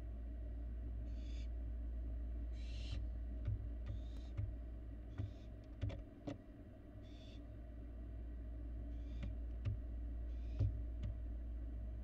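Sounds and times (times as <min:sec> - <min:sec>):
steady low hum: 0:00.0 - 0:12.0
owl fledglings hissing calls: 0:01.1 - 0:01.5, 0:02.5 - 0:03.0, 0:07.0 - 0:07.4, 0:10.3 - 0:10.6.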